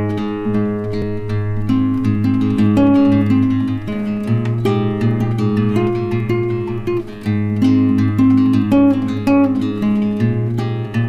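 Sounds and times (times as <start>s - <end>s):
acoustic guitar plucked melody: 0.0s - 11.0s.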